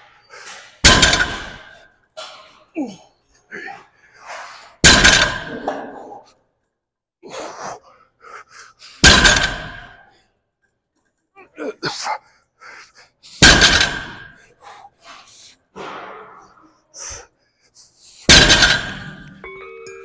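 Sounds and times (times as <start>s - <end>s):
faint breaths: 7.2s - 9.0s, 14.3s - 15.8s.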